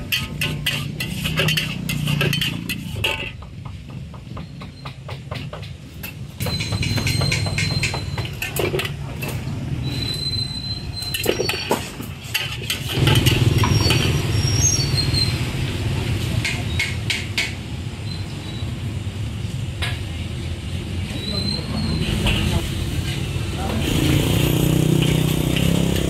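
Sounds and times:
wok clanking and scraping: 0.0 - 18.2, 19.6 - 26.0
street traffic rumble: 0.0 - 26.0
high metallic squeals: 6.4 - 8.9, 9.8 - 15.6, 21.1 - 22.5.

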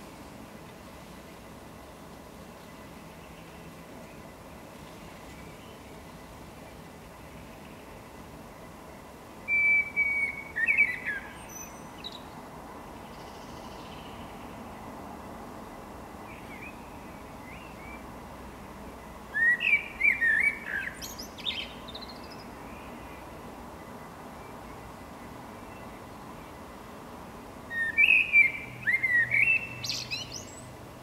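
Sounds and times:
blackbird singing: 9.5 - 12.3, 16.3 - 18.0, 19.3 - 23.0, 27.7 - 30.7.

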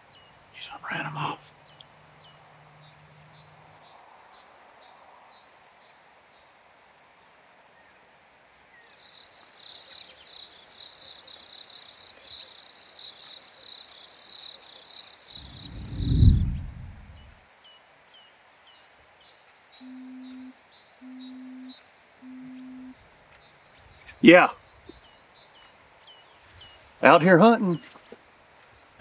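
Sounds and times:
insects trilling: 9.0 - 16.3, 19.7 - 27.2
loud low rumble: 15.4 - 17.4.

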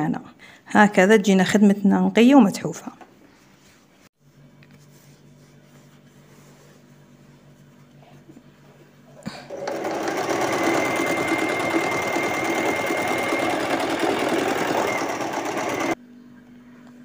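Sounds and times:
sewing machine fast rattle: 9.5 - 16.0.

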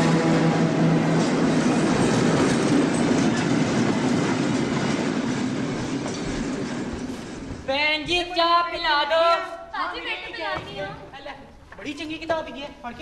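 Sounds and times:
train horn: 0.0 - 1.4
clatter of passing train: 0.0 - 7.7.

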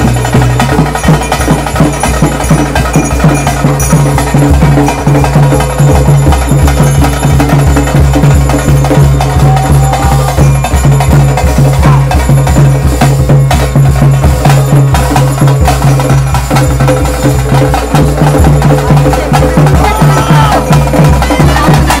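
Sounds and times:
ritual drums fast beat: 0.0 - 22.0.

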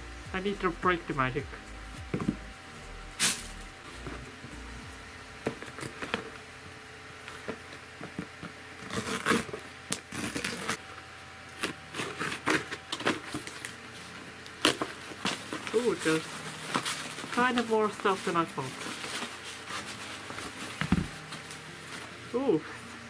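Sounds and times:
fabric rustling and scraping: 13.9 - 23.0.

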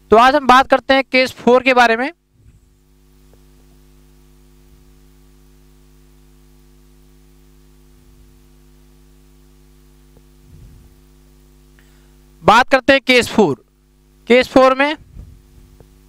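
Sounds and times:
electrical hum: 0.0 - 16.0
faint low thump: 15.1 - 15.8.

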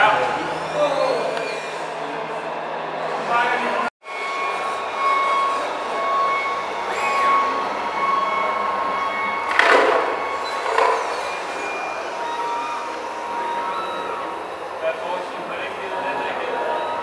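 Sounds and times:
hydraulic pump whining: 4.0 - 17.0.

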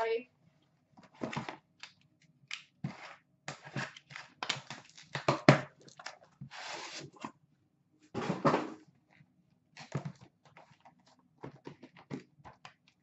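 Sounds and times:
long rasping cardboard scrape: 6.5 - 7.2.

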